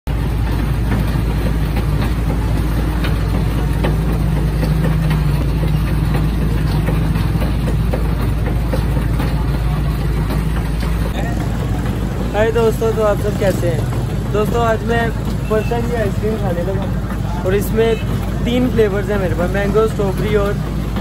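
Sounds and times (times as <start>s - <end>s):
ice-cream machine humming: 0.1s - 21.0s.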